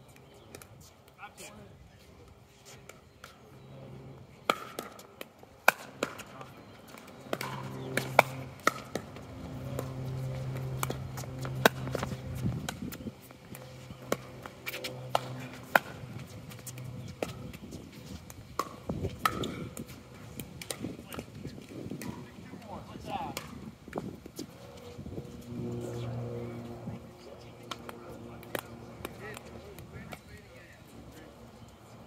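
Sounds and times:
paddles hitting plastic ball: 0:04.5 - 0:22.2
ball bouncing on hard court: 0:06.9 - 0:15.9, 0:18.6 - 0:19.9.

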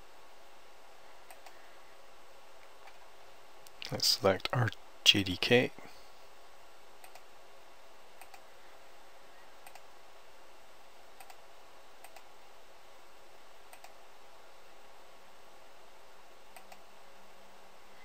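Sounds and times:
low hiss: 0:00.0 - 0:18.0
computer mouse clicking: 0:01.2 - 0:01.6, 0:07.0 - 0:07.3, 0:08.2 - 0:08.4, 0:09.6 - 0:09.9, 0:11.2 - 0:11.4, 0:12.0 - 0:12.3, 0:13.7 - 0:14.0, 0:16.5 - 0:16.8.

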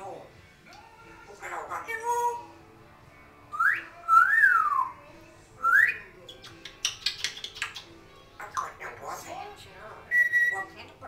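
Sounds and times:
parrot whistling: 0:03.5 - 0:05.0, 0:10.1 - 0:10.8
parrot clicks: 0:06.3 - 0:07.9.

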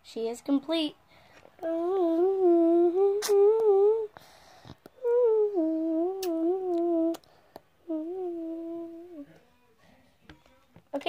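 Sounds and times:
person humming a tune: 0:01.6 - 0:04.2, 0:04.8 - 0:09.3.

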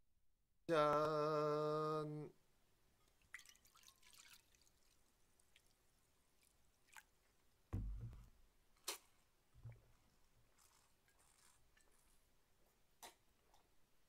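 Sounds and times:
liquid trickling into bowl: 0:03.0 - 0:05.8
bottle set down on wooden table: 0:07.7 - 0:08.3.

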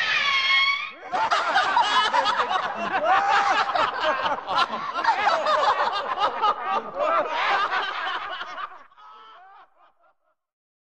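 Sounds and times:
person laughing: 0:01.3 - 0:09.7.

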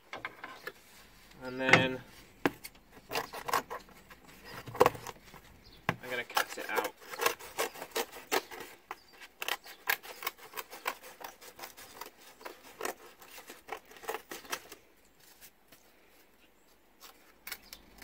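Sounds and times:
scissors cutting cardboard: 0:02.4 - 0:15.5.

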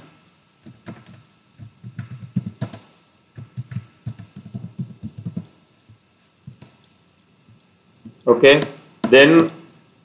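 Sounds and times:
keyboard typing clicks: 0:00.6 - 0:05.5.

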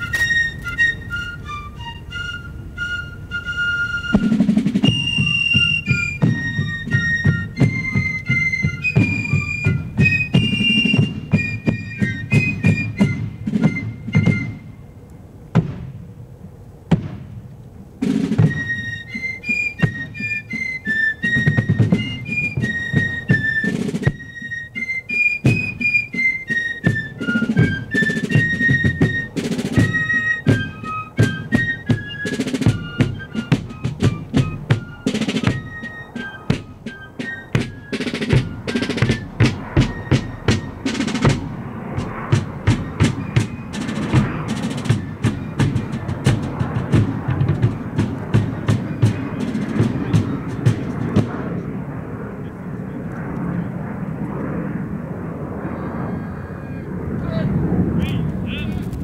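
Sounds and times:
shrill fife melody: 0:00.0 - 0:14.8, 0:18.2 - 0:48.0
snare and bass drum: 0:04.1 - 0:14.6, 0:15.6 - 0:16.0, 0:16.9 - 0:17.4, 0:18.0 - 0:18.8, 0:26.8 - 0:51.5.

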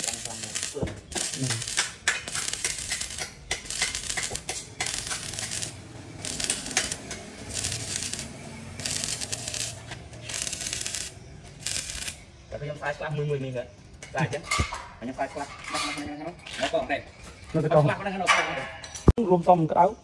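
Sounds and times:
arc welding crackling: 0:00.0 - 0:12.6.

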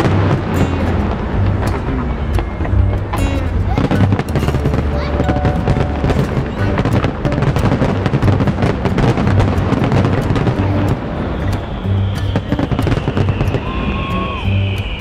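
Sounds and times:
fireworks bursting and crackling: 0:00.0 - 0:15.0
music playing: 0:00.0 - 0:15.0.

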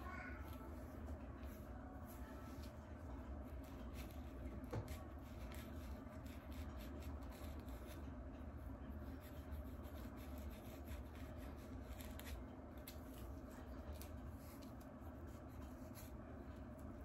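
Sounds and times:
comb scratching through hair: 0:09.1 - 0:16.9.

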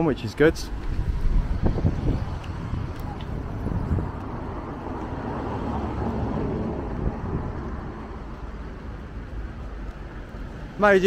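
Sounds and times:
road traffic noise: 0:00.0 - 0:11.0
vehicle passing by: 0:00.6 - 0:08.8.

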